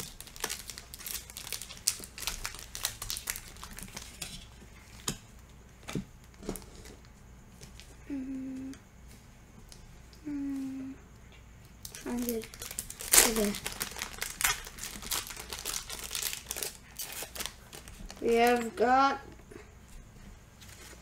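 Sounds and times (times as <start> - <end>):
foil wrapper crinkling and tearing: 0.0 - 5.1, 11.8 - 18.5
voice humming: 8.0 - 8.8, 10.2 - 11.0.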